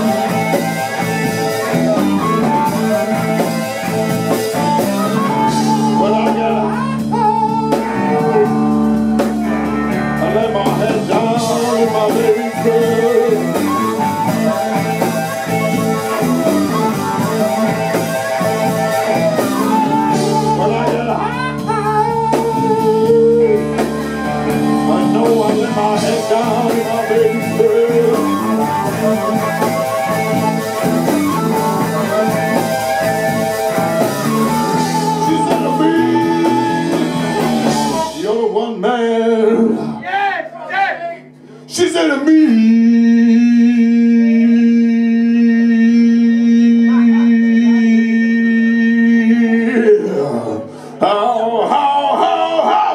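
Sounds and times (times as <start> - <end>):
harmonica bending notes: 0.0 - 38.6
electric guitar: 0.0 - 40.0, 41.2 - 52.9
drums: 0.0 - 52.9.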